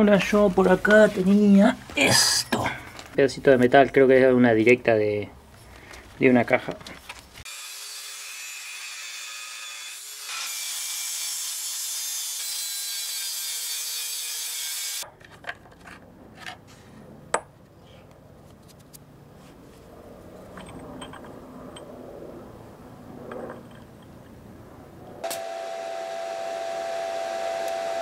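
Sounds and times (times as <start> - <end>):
angle grinder cutting metal: 7.5 - 15.0.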